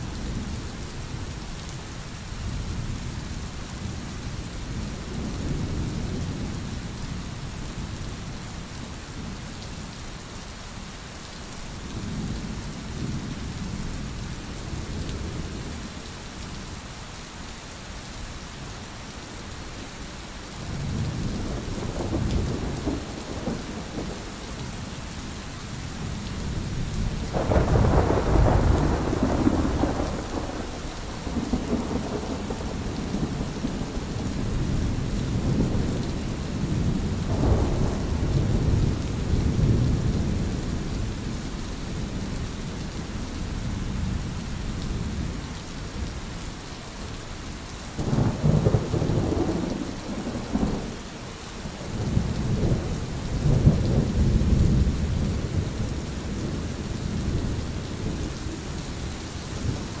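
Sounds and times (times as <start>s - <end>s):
rain hiss: 0.0s - 60.0s
rolling thunder: 26.0s - 41.3s, 48.0s - 51.0s, 51.8s - 58.8s.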